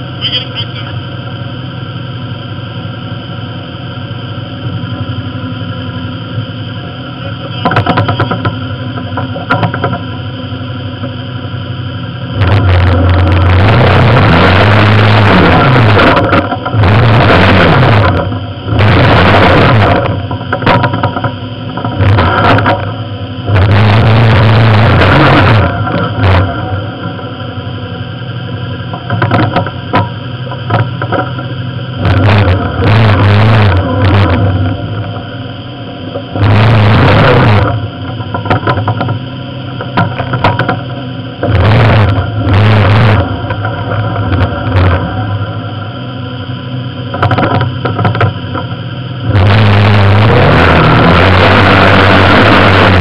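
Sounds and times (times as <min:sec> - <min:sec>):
clunks and rattles: 0:07.2 - 0:10.2, 0:19.8 - 0:23.0, 0:28.8 - 0:35.3, 0:37.6 - 0:45.4, 0:47.0 - 0:48.8
vehicle engine revving: 0:10.8 - 0:53.0.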